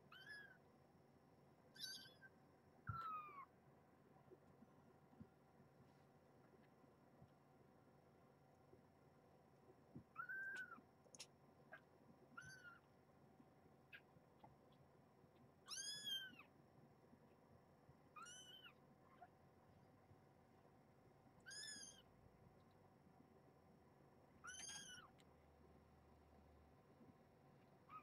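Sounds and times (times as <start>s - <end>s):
kitten mewing: 10.2s - 10.8s.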